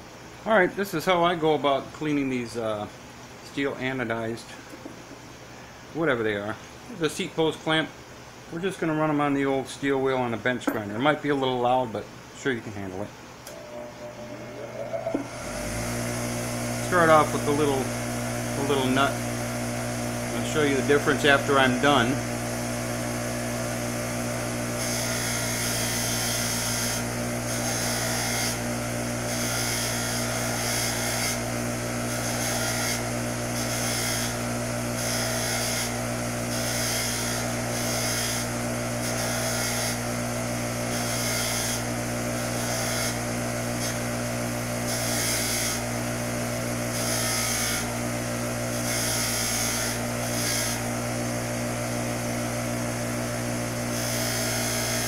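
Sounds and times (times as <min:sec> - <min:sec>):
bench grinder humming: 0:13.4 - 0:55.0.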